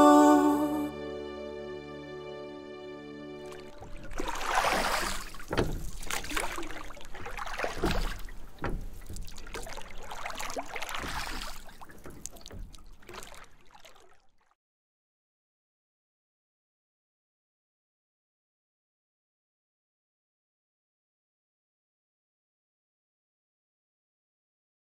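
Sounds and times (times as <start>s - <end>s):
water splashing around canoe: 3.4s - 14.6s
knocks on canoe: 4.8s - 10.0s.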